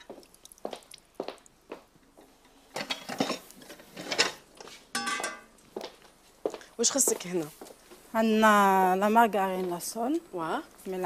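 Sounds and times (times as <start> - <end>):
kitchen utensils and dishes clattering: 2.7 - 5.5.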